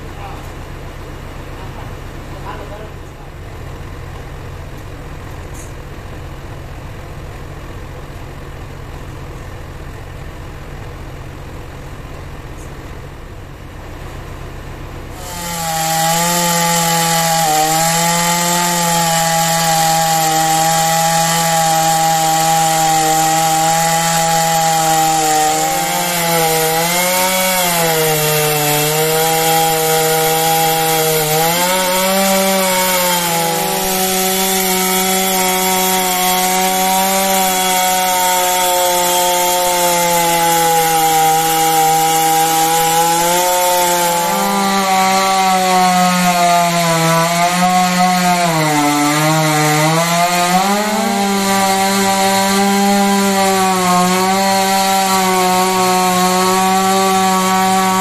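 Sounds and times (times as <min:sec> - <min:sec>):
chainsaw cutting wood: 0:15.0 - 0:58.0.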